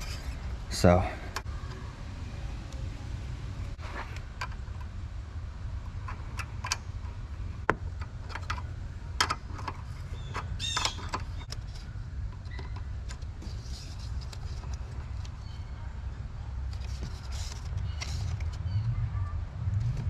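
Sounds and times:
steady low rumble: 0:11.2 - 0:20.0.

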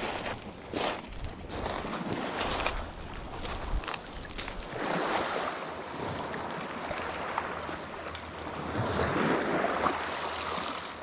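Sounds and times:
waves washing over pebbles: 0:00.7 - 0:11.0.

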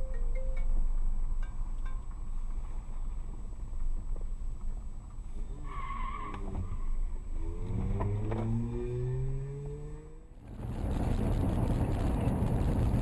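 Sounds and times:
car engine and road noise: 0:00.0 - 0:13.0
engine accelerating: 0:07.3 - 0:13.0.

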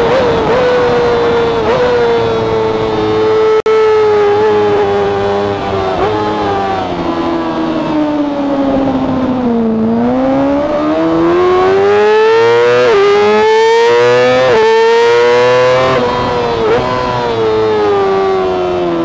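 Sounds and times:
wind rush on microphone: 0:00.0 - 0:03.4, 0:04.6 - 0:13.4
motorcycle engine revving: 0:00.0 - 0:19.0.

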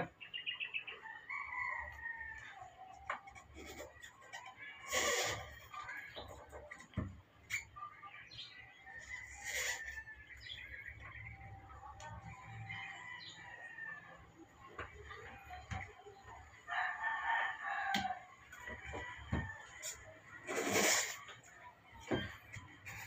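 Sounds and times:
bird calls: 0:00.0 - 0:01.7.

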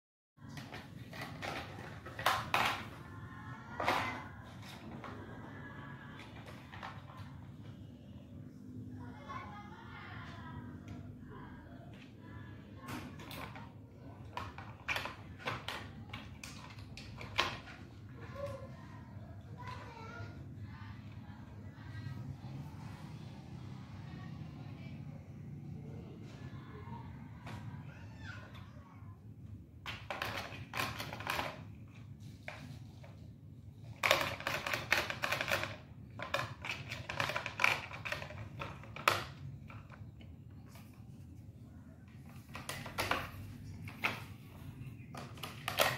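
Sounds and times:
plastic toy clicking on tile floor: 0:00.5 - 0:03.1, 0:06.0 - 0:07.5, 0:12.9 - 0:18.6, 0:29.8 - 0:33.2, 0:33.8 - 0:40.3, 0:42.2 - 0:44.3, 0:45.1 - 0:45.9.

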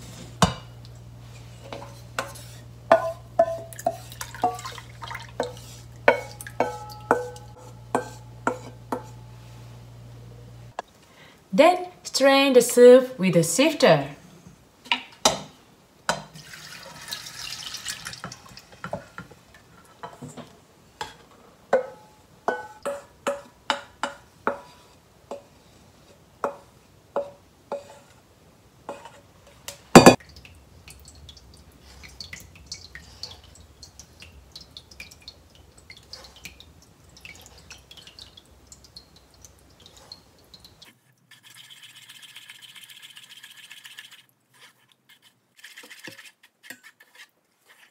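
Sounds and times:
liquid splashing and dripping: 0:03.4 - 0:07.6, 0:30.2 - 0:44.3.

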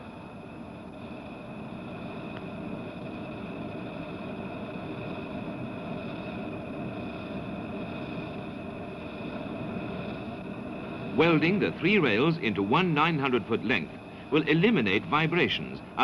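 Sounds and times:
burning charge rushing: 0:00.0 - 0:16.0.

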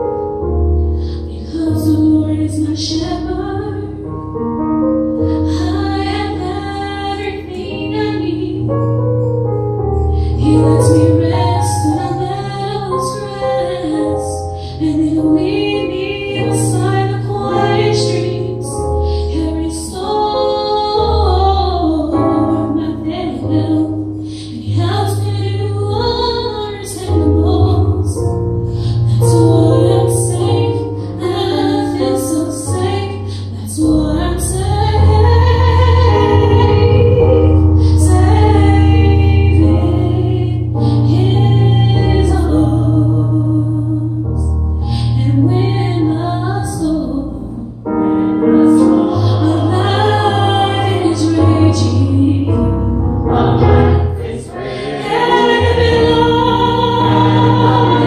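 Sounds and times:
electronic keyboard chords: 0:00.0 - 0:58.0
woman singing lead: 0:05.2 - 0:08.8, 0:10.2 - 0:44.3, 0:48.4 - 0:58.0
choir singing: 0:48.5 - 0:58.0.

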